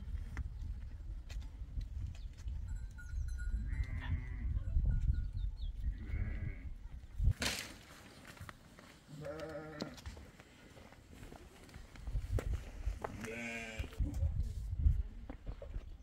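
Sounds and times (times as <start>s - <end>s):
wind rumble on microphone: 0.0s - 7.4s, 11.8s - 16.0s
sheep and goats bleating: 3.7s - 4.7s, 5.8s - 6.8s, 9.1s - 10.1s, 13.0s - 14.0s.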